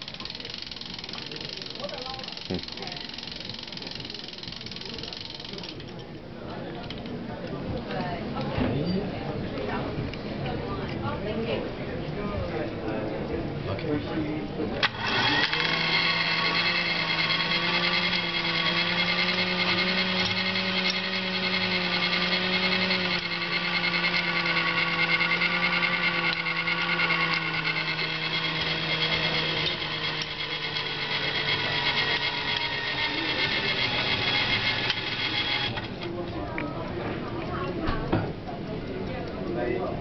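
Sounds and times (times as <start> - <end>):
whir of mechanical gears: 0.0 - 5.9, 14.8 - 36.2.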